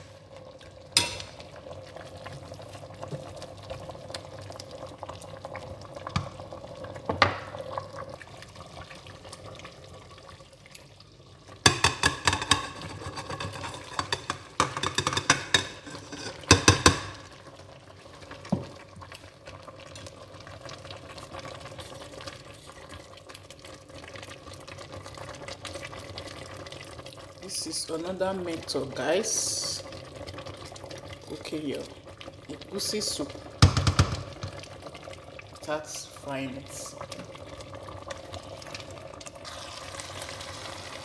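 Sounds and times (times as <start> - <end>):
soup simmering: 0.0 - 41.0
wooden spoon stirring a pot: 11.6 - 17.3.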